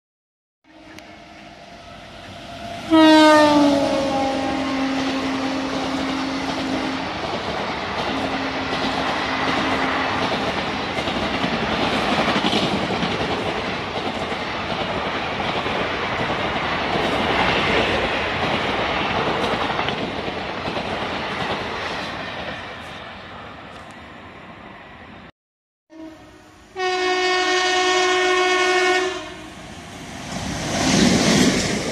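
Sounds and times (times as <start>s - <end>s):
locomotive horn: 0.6s - 7.1s, 25.9s - 29.6s
train coaches rushing past: 0.7s - 25.3s, 28.2s - 31.9s.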